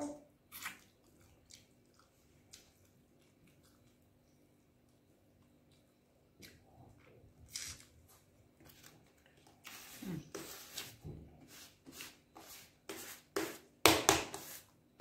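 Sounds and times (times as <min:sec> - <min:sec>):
chewing and lip smacking: 0:00.5 - 0:07.2.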